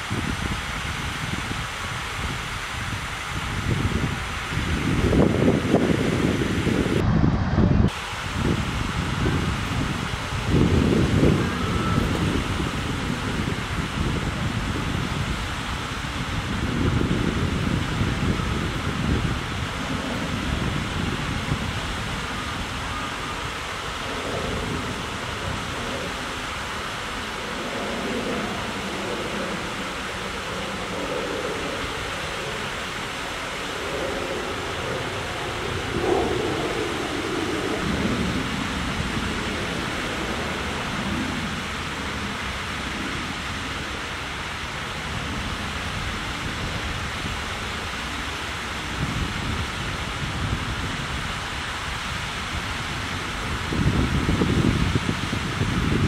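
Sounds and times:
stream water rushing: 0:00.0 - 0:07.0, 0:07.9 - 0:56.0
wind rumble on microphone: 0:00.0 - 0:56.0
low rumble: 0:06.4 - 0:15.4.

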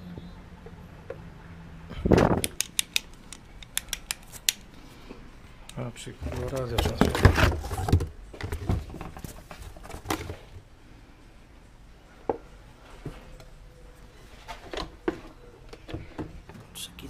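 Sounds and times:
objects knocking and rustling: 0:01.9 - 0:04.6, 0:06.2 - 0:10.6.

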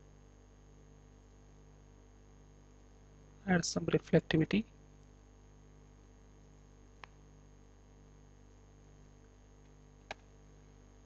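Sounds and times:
faint steady hum: 0:00.0 - 0:11.0
computer mouse clicks: 0:09.6 - 0:10.3.

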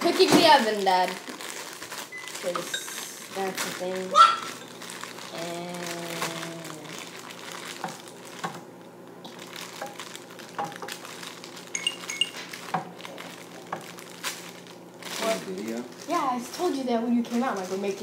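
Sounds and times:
kitchen utensils clicking: 0:11.7 - 0:12.5
metallic clinks: 0:11.8 - 0:12.4.

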